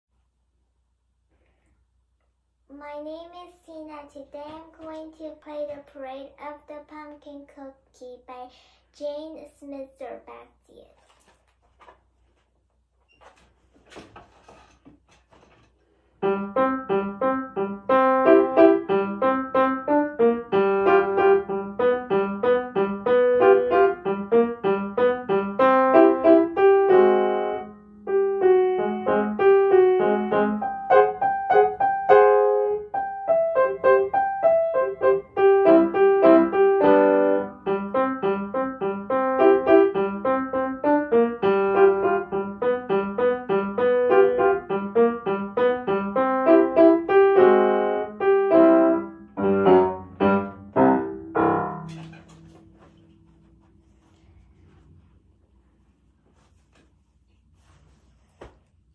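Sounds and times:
upright piano playing: 0:16.2 - 0:53.7.

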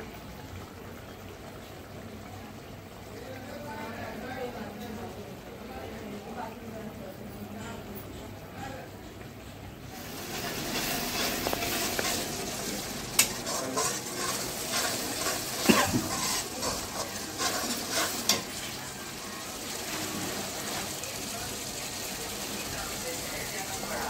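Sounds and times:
paste sizzling in a pan: 0:09.9 - 0:24.0
steel spoon stirring and scraping: 0:10.0 - 0:20.9.

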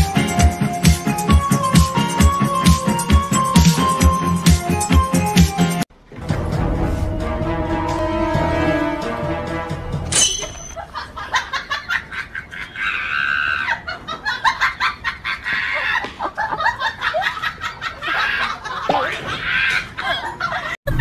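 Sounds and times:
music: 0:00.0 - 0:10.7.

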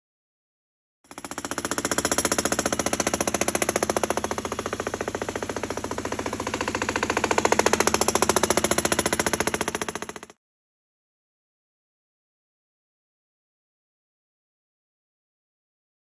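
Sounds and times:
jackhammer hammering concrete: 0:01.0 - 0:10.4.

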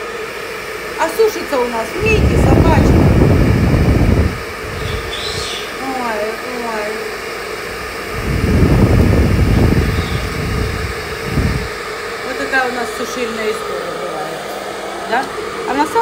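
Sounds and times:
hair dryer blowing: 0:00.0 - 0:16.0.

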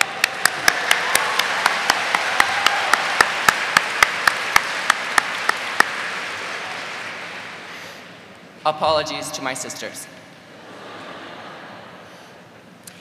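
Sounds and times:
sharp close hand claps: 0:00.0 - 0:07.6
audience applauding: 0:00.0 - 0:08.0.

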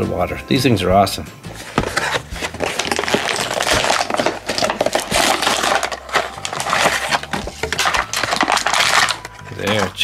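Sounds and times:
plastic packaging crinkling: 0:01.6 - 0:10.0.

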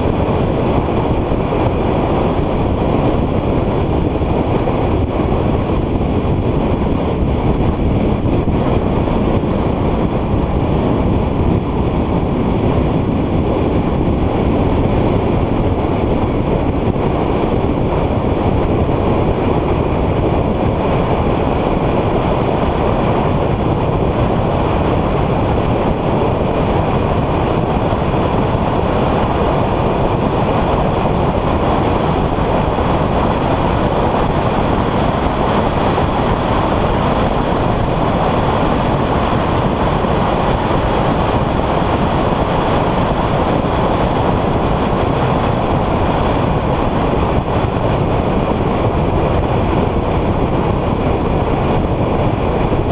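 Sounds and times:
car road noise: 0:00.0 - 0:52.9
wind noise: 0:00.0 - 0:52.9.

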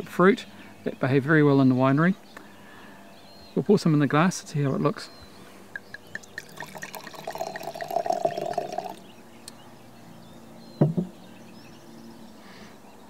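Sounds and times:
wine pouring into a glass: 0:05.8 - 0:09.1
dull knock: 0:10.8 - 0:11.1.

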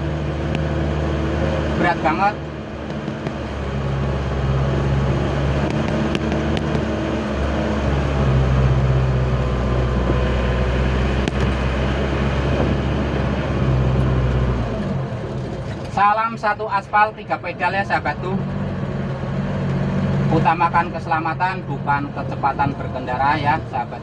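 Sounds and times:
pickup truck engine running: 0:00.0 - 0:15.8.

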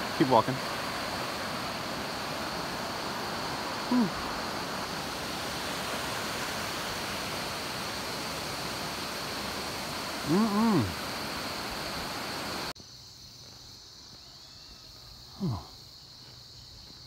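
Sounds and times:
river rushing over rapids: 0:00.0 - 0:12.7.

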